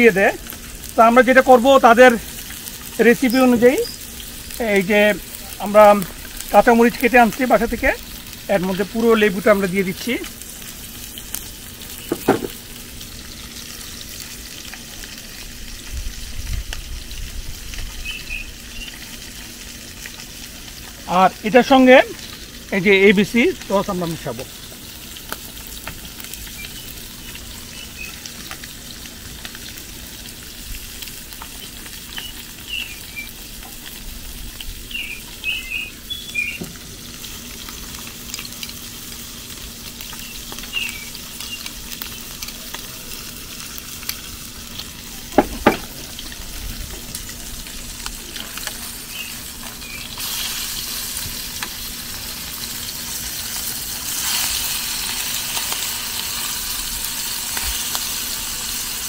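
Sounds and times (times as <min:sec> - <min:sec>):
fish deep-frying in hot oil: 0:00.0 - 0:59.0
sharp knocks: 0:12.1 - 0:12.6, 0:45.4 - 0:46.1.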